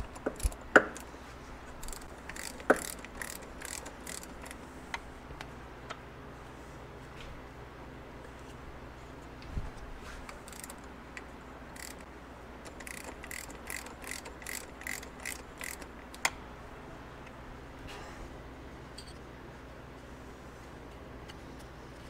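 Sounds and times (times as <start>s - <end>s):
ratchet wrench clicking: 0.0s - 1.0s, 1.8s - 4.6s, 10.3s - 16.3s.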